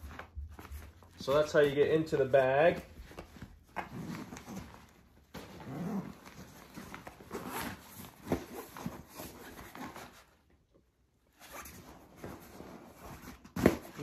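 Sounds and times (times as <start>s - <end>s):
nylon bag rustling and flapping: 0.0s - 10.3s.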